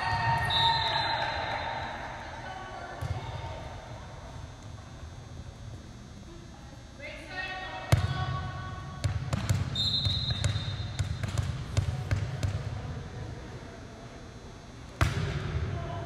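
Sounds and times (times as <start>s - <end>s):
volleyball being hit: 3.0s - 3.2s, 9.0s - 12.7s, 15.0s - 15.5s.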